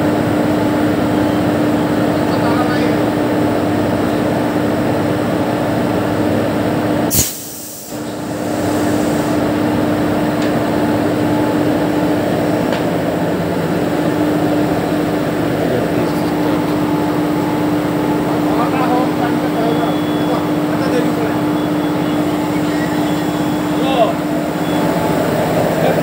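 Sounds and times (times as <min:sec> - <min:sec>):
locomotive idling hum: 0:00.0 - 0:26.0.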